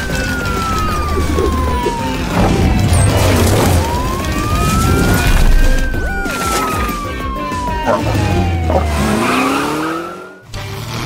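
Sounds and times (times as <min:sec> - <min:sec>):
cartoon police siren wailing: 0:00.0 - 0:10.4
music: 0:00.0 - 0:11.0
low rumble: 0:00.6 - 0:06.3.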